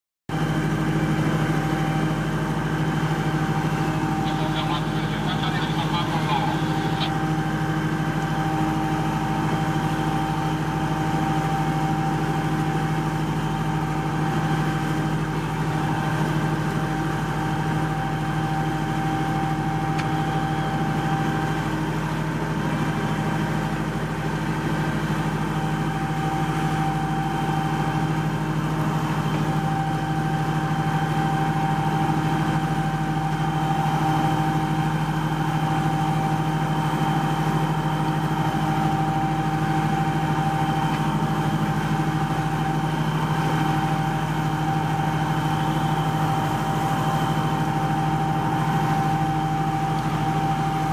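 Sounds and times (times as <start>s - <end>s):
low engine hum: 0.3s - 50.9s
high whine: 3.2s - 8.6s.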